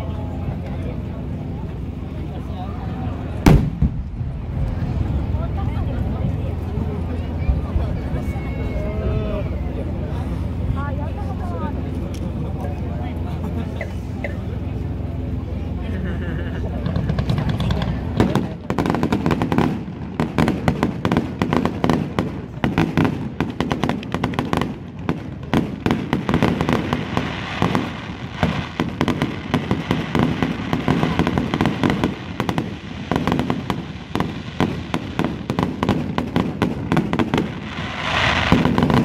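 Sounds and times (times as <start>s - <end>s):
fireworks bursting and crackling: 3.2s - 7.1s, 16.6s - 39.0s.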